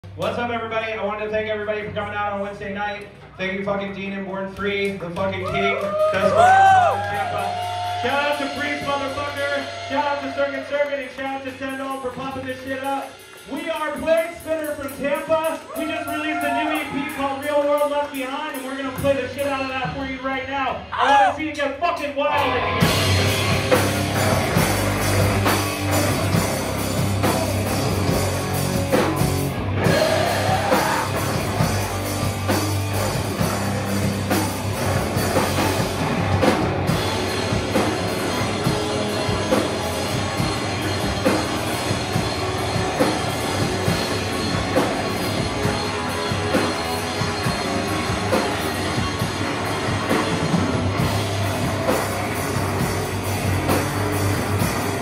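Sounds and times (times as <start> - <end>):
drum kit: 0.0 - 55.0
guitar slide: 22.3 - 55.0
guitars: 22.3 - 55.0.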